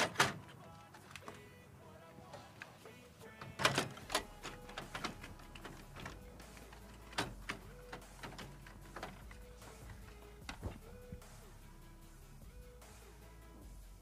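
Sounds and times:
plastic and metal clicks and clunks: 0.0 - 1.6, 3.3 - 10.9.

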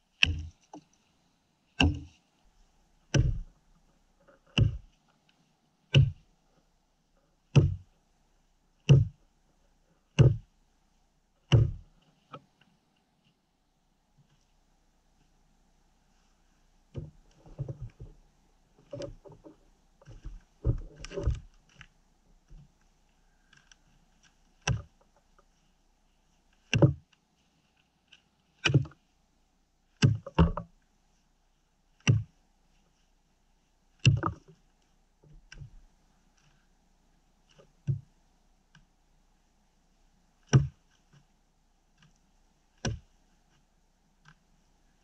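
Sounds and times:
axe chopping log: 0.2 - 0.5, 1.8 - 2.2, 3.1 - 3.5, 4.5 - 4.9, 5.9 - 6.2, 7.5 - 7.9, 8.9 - 9.2, 10.2 - 10.4, 11.5 - 11.8, 40.5 - 40.8, 42.8 - 43.1
rustling: 14.2 - 45.0.

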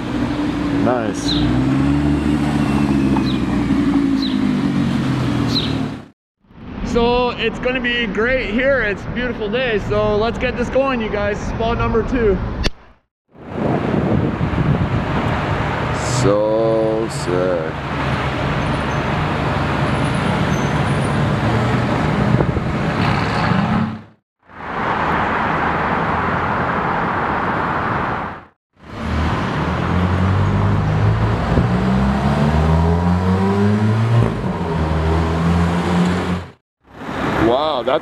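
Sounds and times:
turbocharged car accelerating hard: 0.0 - 5.9, 28.9 - 36.6
sports car engine accelerating: 0.0 - 6.0, 29.1 - 36.6
road and traffic noise: 0.0 - 6.8, 10.5 - 38.0.

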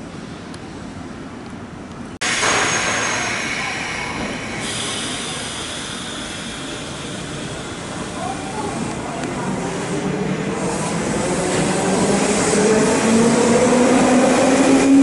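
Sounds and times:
high squeal of train brakes: 2.2 - 8.8
train rolling and hissing: 2.2 - 15.0.

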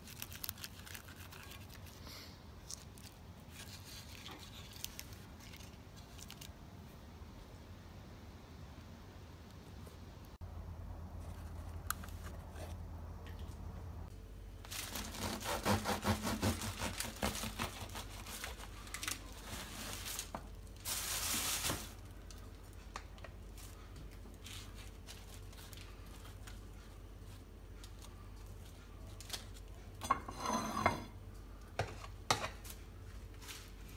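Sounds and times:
rustling: 0.0 - 6.5, 14.6 - 29.6
bread knife sawing crusty loaf: 14.9 - 18.6.

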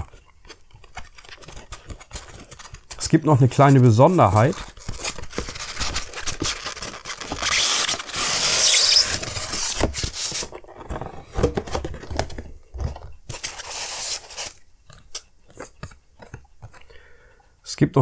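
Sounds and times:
cardboard and packing rustling: 0.0 - 14.6
styrofoam scraping against cardboard: 0.8 - 10.6, 13.3 - 14.6.

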